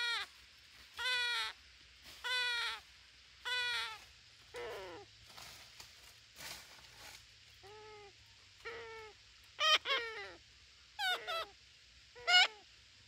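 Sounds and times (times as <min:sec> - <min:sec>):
parakeets squawking: 0:11.0 - 0:11.5.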